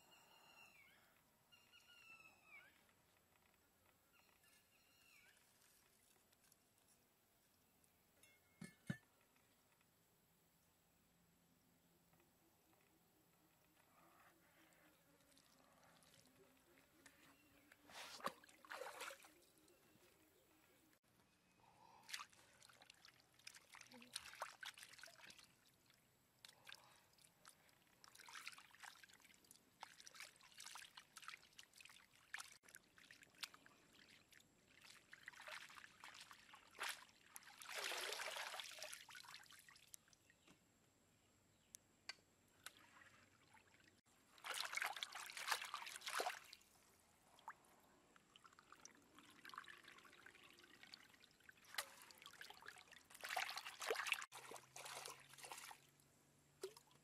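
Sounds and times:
water trickling and splashing: 0:15.2 - 0:17.2, 0:17.9 - 0:20.2, 0:22.0 - 0:40.3, 0:42.6 - 0:57.0.

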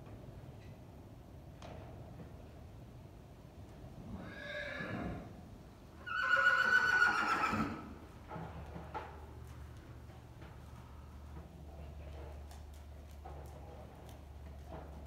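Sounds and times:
horse whinnying: 0:04.2 - 0:05.3, 0:06.0 - 0:08.0.

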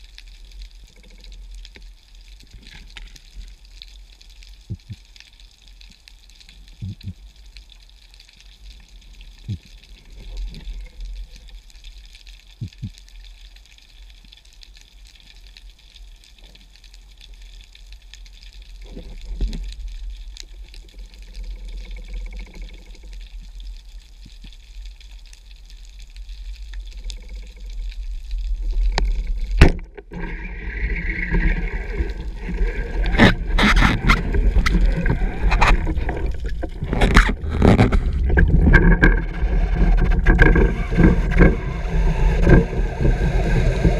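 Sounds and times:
muffled underwater ambience: 0:00.0 - 0:43.9
faint clicks: 0:00.1 - 0:30.3
rushing water: 0:28.4 - 0:43.9.

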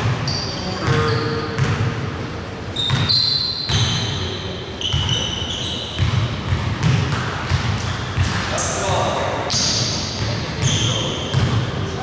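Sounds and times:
basketball bouncing: 0:00.0 - 0:02.0, 0:02.9 - 0:03.1, 0:05.9 - 0:11.7
sneakers squeaking on floor: 0:00.0 - 0:02.0, 0:02.6 - 0:12.0.

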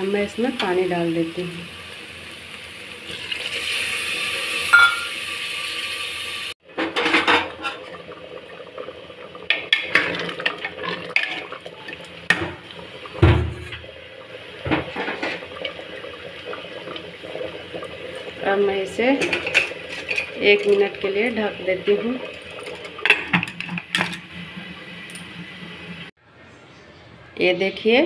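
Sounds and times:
water pouring into pot: 0:01.2 - 0:26.1
spoon scraping metal pot: 0:19.2 - 0:20.9.

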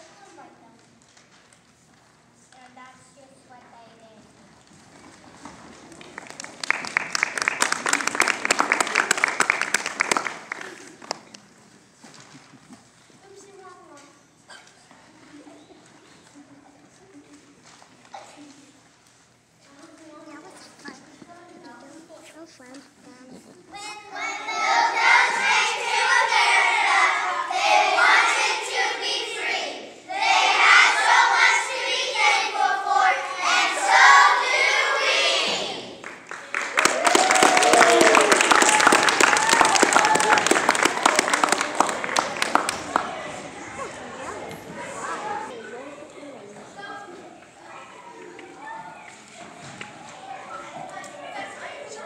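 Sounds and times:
audience applauding: 0:05.8 - 0:11.4, 0:36.0 - 0:44.0
children singing: 0:24.2 - 0:35.9.

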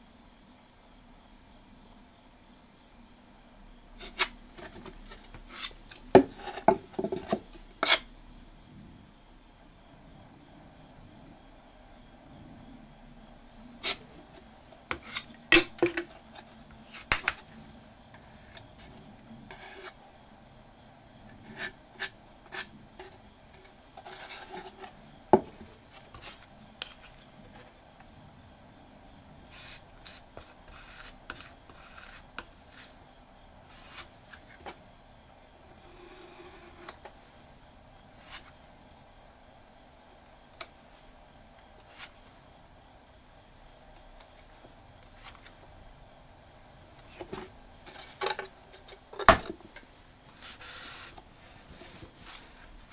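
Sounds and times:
wooden spatula scraping: 0:04.0 - 0:08.0, 0:13.8 - 0:17.3, 0:19.5 - 0:20.0, 0:21.4 - 0:25.0, 0:29.6 - 0:33.0, 0:50.3 - 0:52.9.

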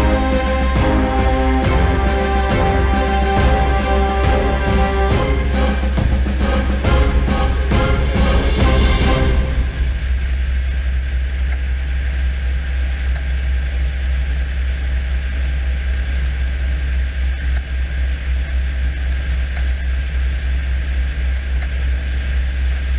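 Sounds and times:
propeller plane engine droning: 0:00.0 - 0:16.0.

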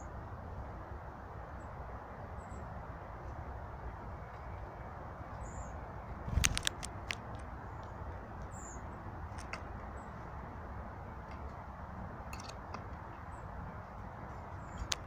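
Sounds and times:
faint high bird chirps: 0:04.2 - 0:05.8.

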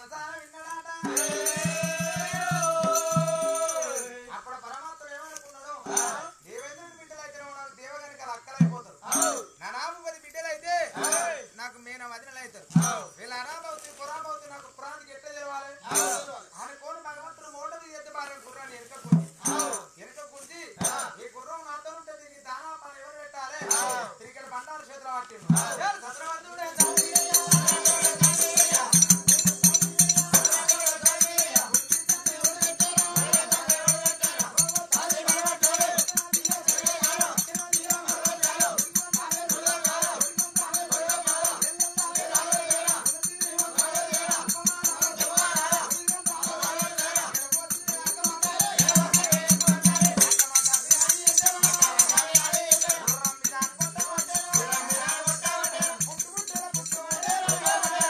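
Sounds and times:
jingling rattling percussion: 0:00.0 - 0:13.6, 0:15.8 - 0:16.7, 0:18.4 - 0:21.3, 0:23.6 - 0:24.4, 0:25.5 - 0:58.0
person singing: 0:01.0 - 0:04.1, 0:26.8 - 0:58.0.

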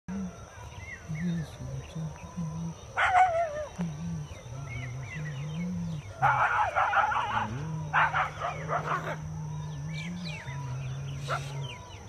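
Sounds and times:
dogs snarling and barking: 0:03.0 - 0:03.8, 0:06.2 - 0:12.0
dogs yelping: 0:03.0 - 0:03.8, 0:06.2 - 0:09.3.

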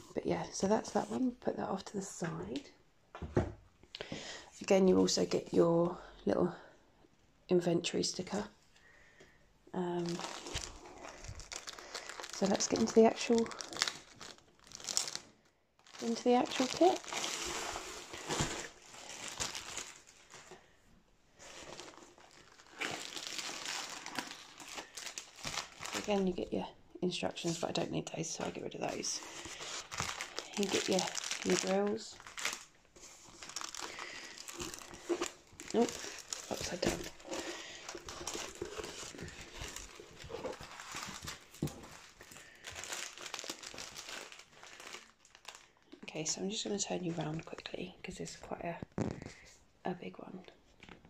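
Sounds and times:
plastic wrap rustling and crinkling: 0:09.9 - 0:47.8, 0:48.4 - 0:49.7
small taps and crackles: 0:48.7 - 0:49.4.

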